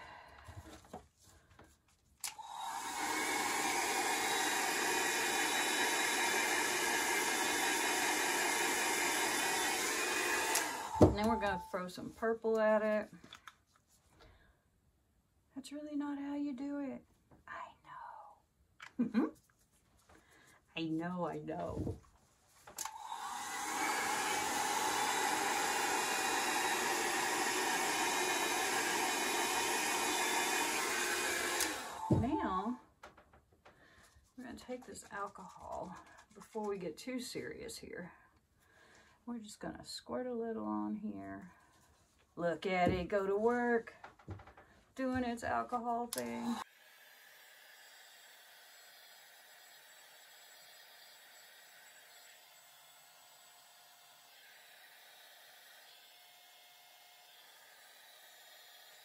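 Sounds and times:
hair dryer whirring: 2.2s - 11.8s, 22.7s - 32.8s, 46.1s - 59.0s
blower motor and fan running: 2.5s - 11.4s, 22.8s - 32.5s.

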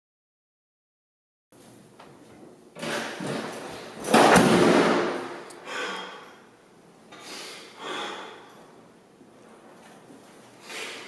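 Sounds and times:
door slamming: 2.8s - 5.5s.

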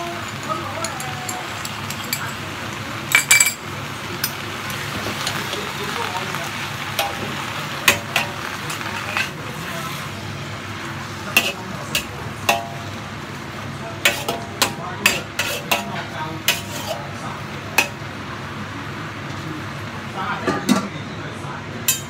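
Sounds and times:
vegetables sizzling in a wok: 0.0s - 20.5s
metal spatula scraping a wok: 7.0s - 10.0s, 11.3s - 12.8s, 14.0s - 17.2s.

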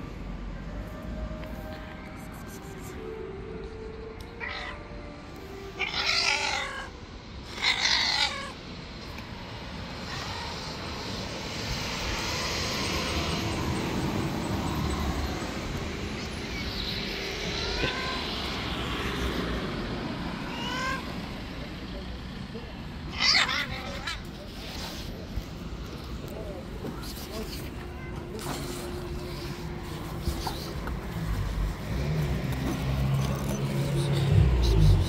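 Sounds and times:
steady rushing background noise: 0.0s - 23.1s
cat meowing: 4.4s - 4.8s, 5.8s - 6.9s, 7.5s - 8.6s, 10.0s - 10.8s, 16.2s - 18.6s, 20.4s - 21.2s, 23.1s - 24.3s.

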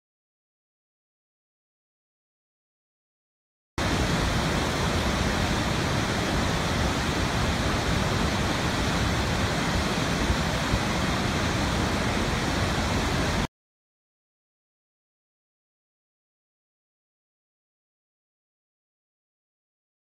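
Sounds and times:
waterfall rushing: 3.8s - 13.5s.

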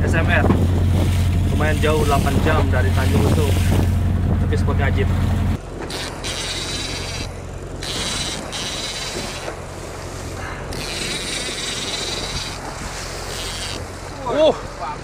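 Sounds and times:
boat engine humming: 0.0s - 15.0s
fishing reel gears whirring: 5.6s - 14.2s.

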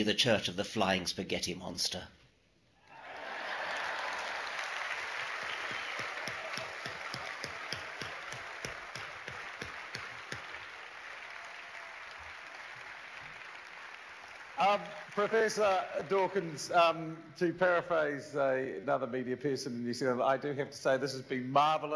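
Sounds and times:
audience applauding: 2.9s - 16.7s.

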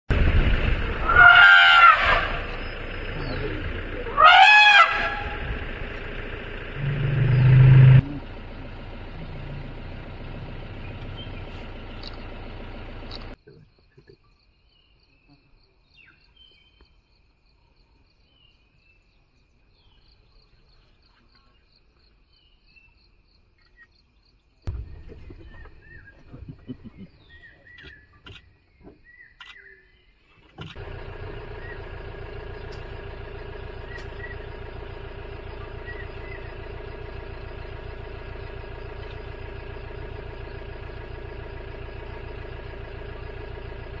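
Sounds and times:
faint insect drone: 13.1s - 24.6s
bird chirps: 22.3s - 30.3s, 33.8s - 34.7s, 35.4s - 36.7s.

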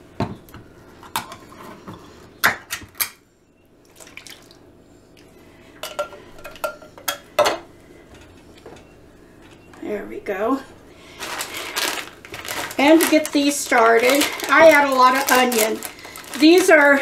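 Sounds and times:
tin can clinking against metal pot: 5.8s - 7.6s.

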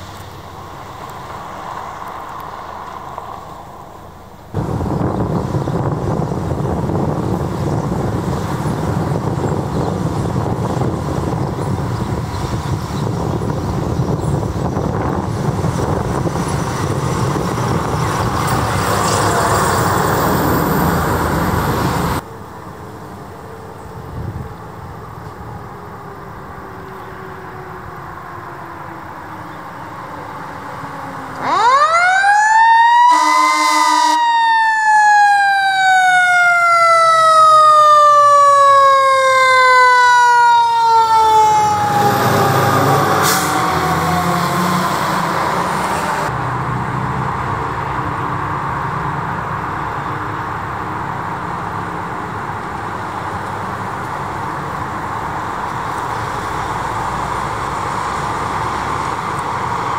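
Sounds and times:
truck engine and road noise: 0.0s - 59.9s
mechanical siren wailing: 24.0s - 46.3s
truck horn blast: 33.1s - 34.2s.

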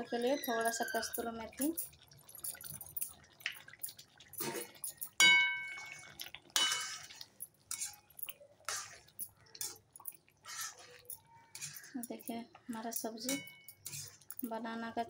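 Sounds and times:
spoon clanging on pan: 5.0s - 6.0s, 6.6s - 9.0s, 10.6s - 14.4s
metal spoon scraping steel pan: 7.7s - 8.1s, 10.5s - 12.2s, 12.8s - 14.5s.

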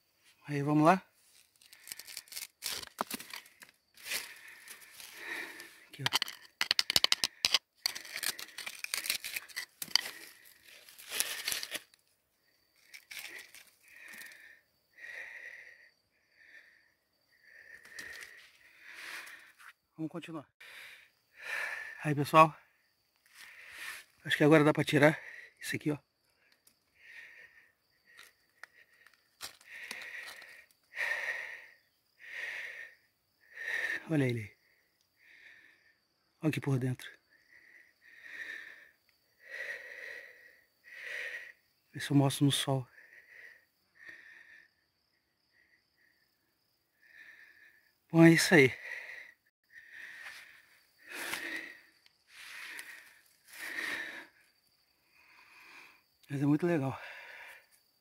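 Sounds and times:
man breathing heavily: 1.6s - 19.8s, 20.5s - 22.0s, 22.6s - 24.2s, 25.0s - 36.4s, 37.2s - 41.9s, 42.8s - 56.2s, 56.9s - 58.0s
stone clicks: 6.0s - 10.4s
screwdriver scraping rock: 6.0s - 11.9s.

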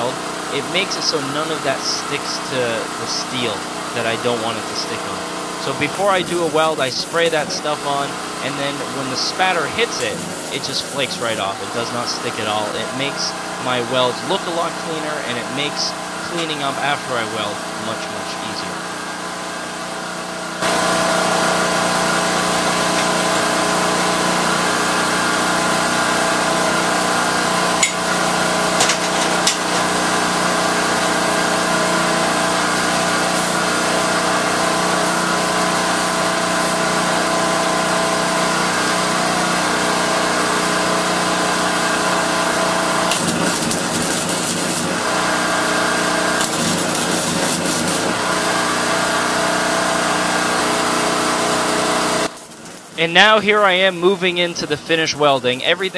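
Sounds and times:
motor humming: 0.0s - 52.4s
wire welding crackle: 5.8s - 11.5s, 21.8s - 40.7s, 43.0s - 55.9s.

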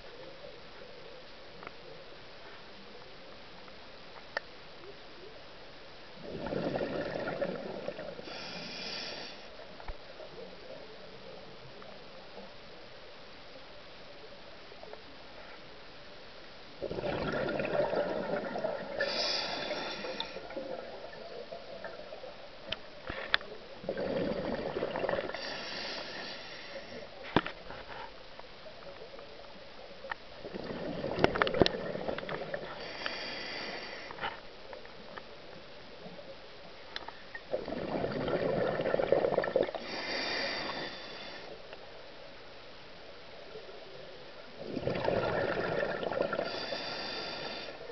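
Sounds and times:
exhaled bubbles rushing: 6.2s - 8.2s, 16.8s - 22.3s, 23.8s - 25.4s, 30.4s - 32.7s, 37.5s - 39.9s, 44.6s - 46.8s
diver breathing through regulator: 8.2s - 9.5s, 18.9s - 20.6s, 25.2s - 27.1s, 32.2s - 34.3s, 39.7s - 41.6s, 46.3s - 47.8s.

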